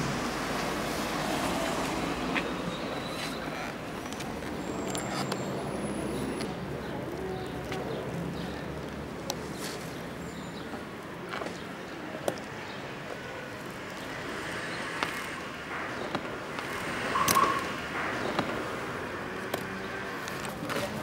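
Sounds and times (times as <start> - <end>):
street noise: 0.0 - 21.0
brief loud tone: 17.2 - 17.6.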